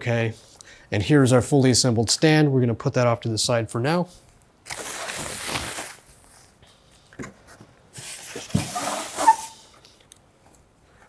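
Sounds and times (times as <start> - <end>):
plastic wrap rustling: 4.6 - 6.6
pulp packaging scraping: 4.7 - 6.1, 8.0 - 9.7.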